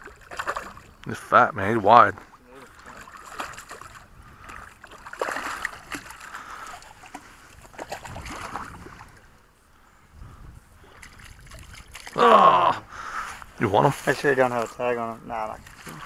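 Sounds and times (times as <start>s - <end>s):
fish splashing in water: 0.0s - 1.0s, 2.7s - 9.1s, 10.9s - 12.2s.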